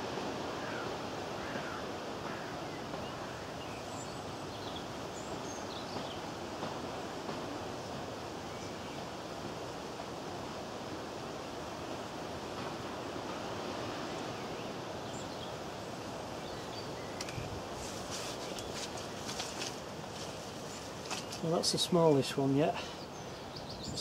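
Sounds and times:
wind buffeting microphone: 0:14.8 - 0:21.4.

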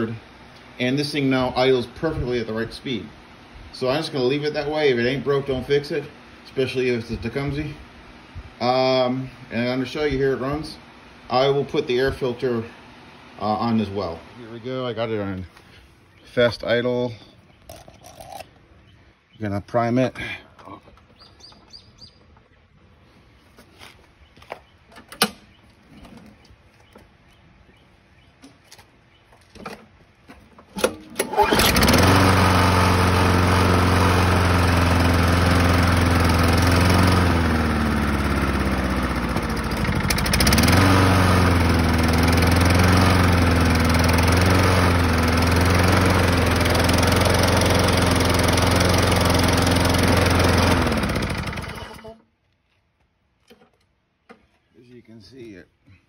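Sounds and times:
lawn mower engine running: 0:00.0 - 0:15.8, 0:29.5 - 0:52.3.

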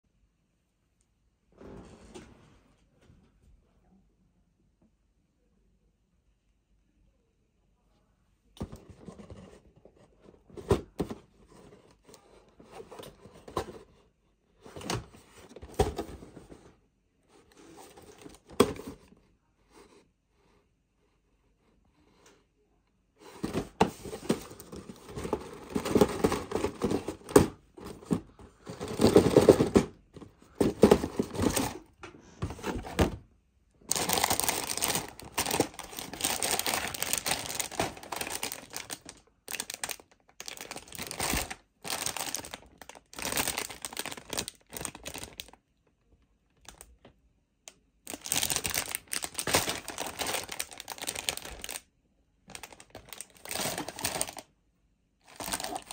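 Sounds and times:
plastic bags crinkling: 0:23.4 - 0:31.9, 0:33.8 - 0:45.6, 0:48.1 - 0:51.8, 0:52.5 - 0:54.5, 0:55.2 - 0:55.9.

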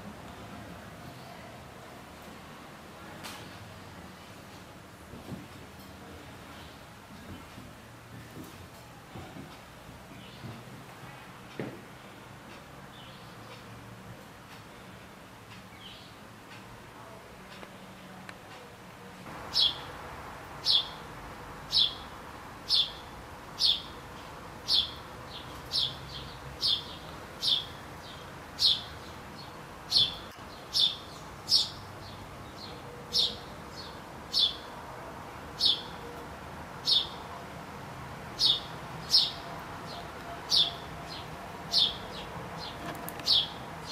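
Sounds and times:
faint background hiss: 0:00.0 - 0:43.9
bird chirping: 0:19.5 - 0:20.0, 0:20.6 - 0:21.0, 0:21.7 - 0:22.1, 0:22.7 - 0:34.7, 0:36.8 - 0:37.2, 0:38.4 - 0:43.9.

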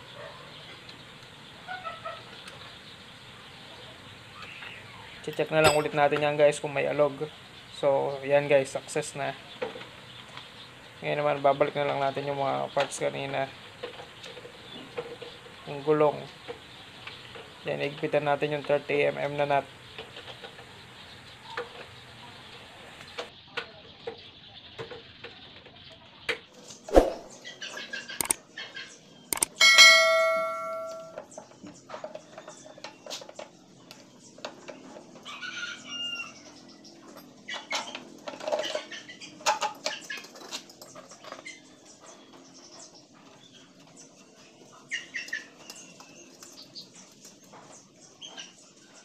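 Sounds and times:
loud ringing metallic clang: 0:05.6 - 0:06.0, 0:29.6 - 0:31.2
metal tools knocking and clicking: 0:05.6 - 0:06.0.

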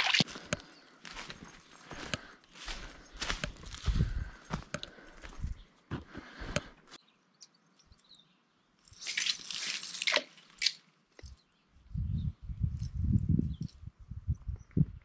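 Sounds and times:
footsteps crunching on path: 0:00.0 - 0:07.0.

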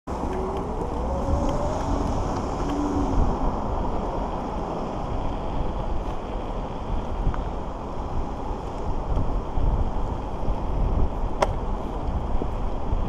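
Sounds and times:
road rumble: 0:00.0 - 0:13.0
faint rising whine: 0:00.1 - 0:06.0
wind buffeting microphone: 0:00.1 - 0:13.0.

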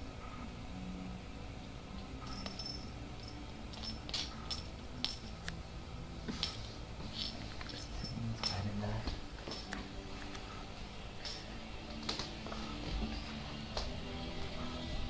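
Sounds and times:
cat toy clicking and tinkling: 0:02.2 - 0:05.4.

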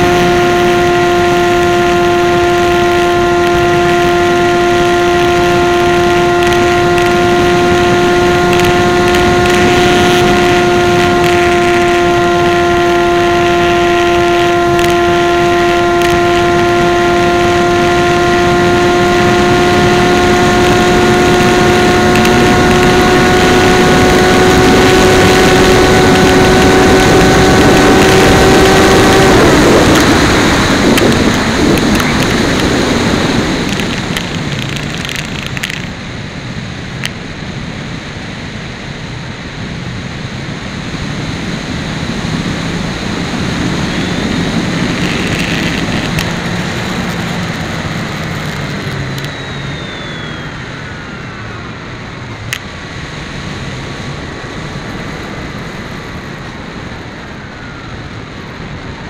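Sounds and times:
model aircraft motor buzzing: 0:00.0 - 0:35.9, 0:42.3 - 0:56.5
wind rushing over airframe: 0:19.3 - 0:59.0.

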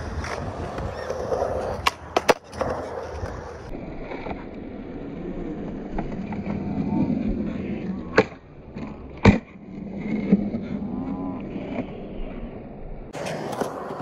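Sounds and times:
skateboard wheels rolling: 0:00.0 - 0:14.0
skateboard landing slap: 0:08.1 - 0:08.4, 0:09.2 - 0:09.5.

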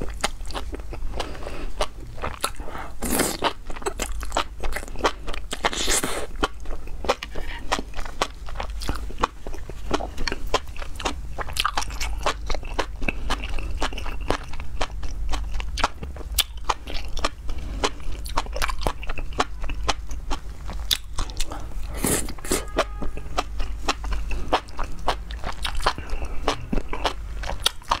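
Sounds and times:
wet chewing with crisp clicks: 0:00.0 - 0:28.0
slurping: 0:21.4 - 0:22.8.

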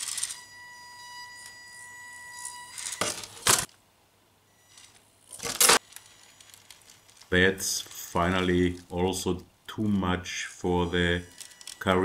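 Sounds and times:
small electric motor whining: 0:00.0 - 0:03.6.

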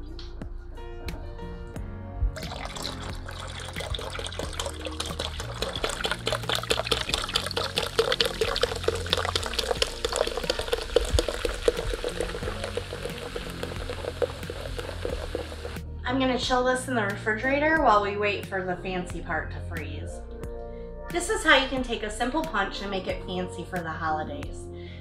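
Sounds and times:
soft background music: 0:00.0 - 0:25.0
bubbles fizzing: 0:02.4 - 0:15.8
soda pouring into pitcher: 0:02.4 - 0:15.8.

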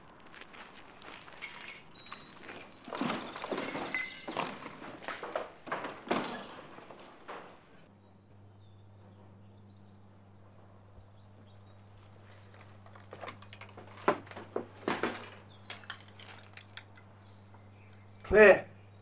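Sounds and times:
crunches and scrapes of debris: 0:00.0 - 0:07.9, 0:11.4 - 0:18.1
footsteps on rubble: 0:00.0 - 0:07.9, 0:11.4 - 0:17.1
low steady hum: 0:01.4 - 0:19.0.

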